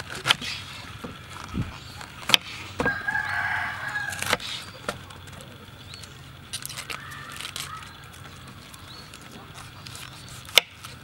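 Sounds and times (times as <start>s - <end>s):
rooster crowing: 2.8s - 4.4s.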